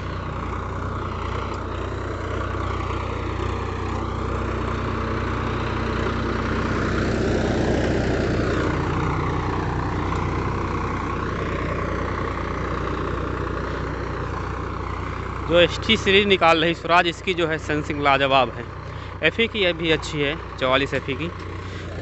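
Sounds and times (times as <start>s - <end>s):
tractor diesel engine under load: 0.0s - 22.0s.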